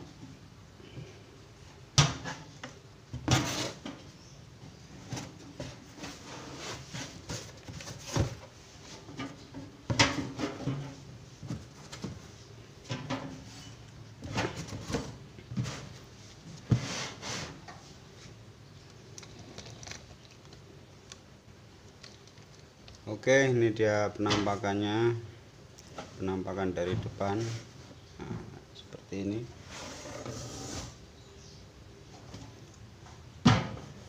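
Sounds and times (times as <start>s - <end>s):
cardboard packing rustling and scraping: 3.2s - 4.0s, 4.7s - 12.5s, 13.3s - 18.4s.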